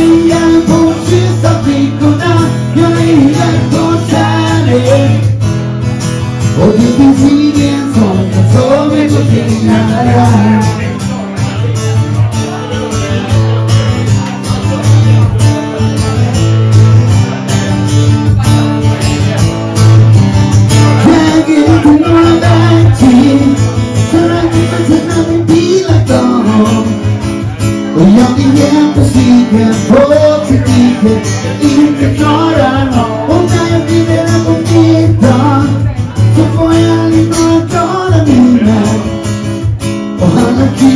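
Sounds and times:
man singing into a microphone: 0:00.0 - 0:40.9
strummed acoustic guitar: 0:00.0 - 0:40.9.

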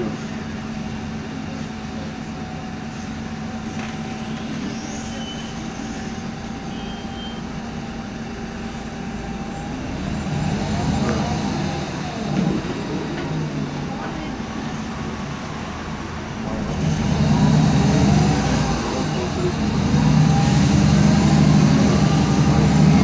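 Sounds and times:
bus engine with whining differential: 0:00.0 - 0:23.0.

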